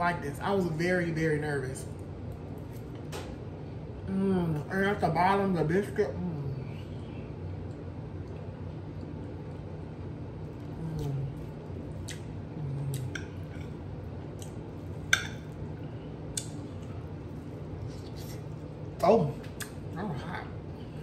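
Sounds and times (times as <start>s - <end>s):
chewing: 10.4s - 15.7s
closed-mouth hums: 10.6s - 13.6s.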